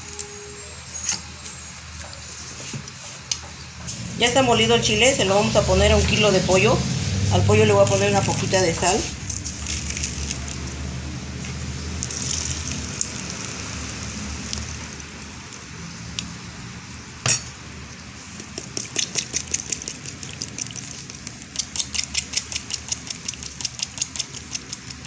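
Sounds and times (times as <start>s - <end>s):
thick sauce pouring: 7.9s - 16.8s, 18.1s - 25.0s.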